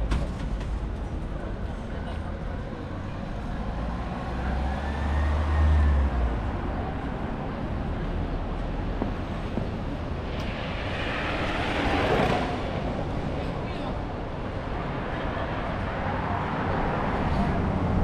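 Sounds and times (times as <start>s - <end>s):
rush of traffic noise: 0.0s - 18.0s
vehicles passing: 0.0s - 18.0s.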